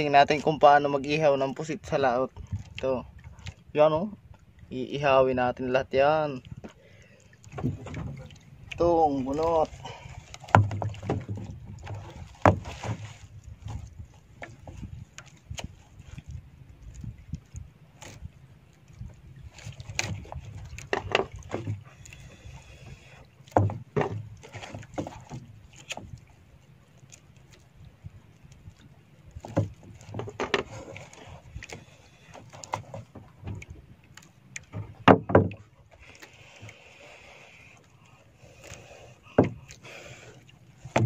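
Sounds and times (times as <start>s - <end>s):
knocks on a wooden boat: 10.4s - 13.0s, 23.5s - 24.3s, 34.7s - 35.6s, 39.3s - 39.7s.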